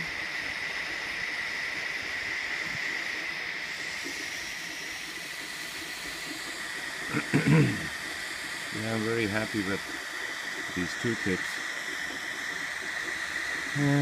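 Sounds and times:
burner hissing and whistling: 0:00.0 - 0:14.0.

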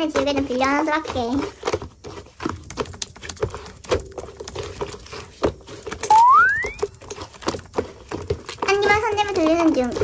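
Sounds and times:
whistle-like rising tone: 0:06.0 - 0:06.9.

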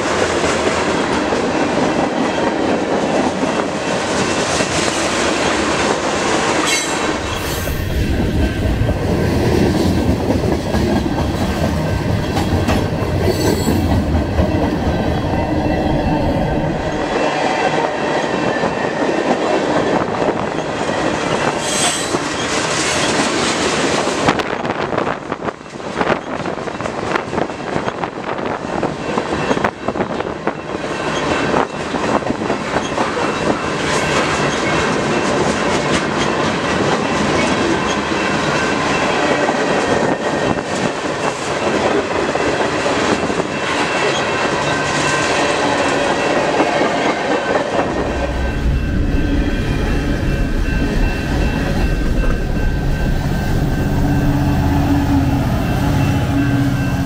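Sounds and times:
diesel locomotive passing: 0:00.0 - 0:57.0
freight cars rolling on rails: 0:00.0 - 0:57.0
high steady squeal: 0:06.6 - 0:09.0, 0:47.8 - 0:57.0.

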